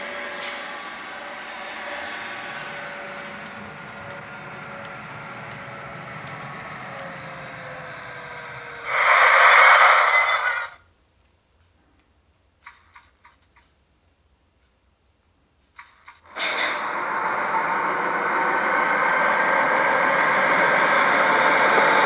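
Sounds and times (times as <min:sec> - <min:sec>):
model locomotive motor whine: 0:00.0 - 0:10.8, 0:16.3 - 0:22.0
loud hiss with squealing tones: 0:05.9 - 0:10.8.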